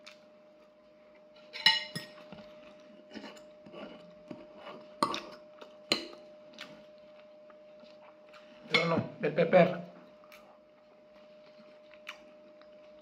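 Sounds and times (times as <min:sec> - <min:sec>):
fork clinking on ceramic plate: 0:01.5 - 0:02.2.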